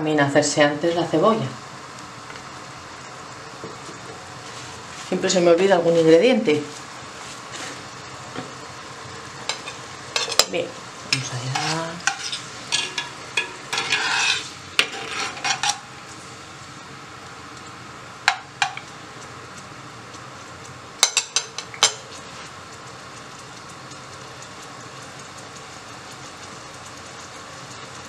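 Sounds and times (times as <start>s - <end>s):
spoon scraping clay pot: 11.2s - 15.8s.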